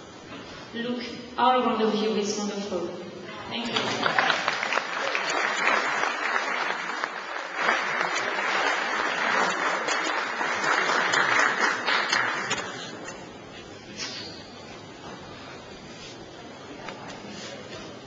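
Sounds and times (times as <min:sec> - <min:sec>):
audience applauding: 0:03.8 - 0:12.9.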